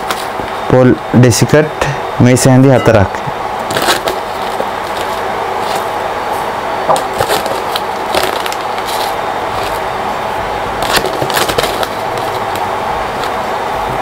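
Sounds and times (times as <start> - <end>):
steady background hum: 0.0 - 14.0
plastic packet crinkling: 3.7 - 5.9, 7.0 - 9.9, 10.8 - 13.4.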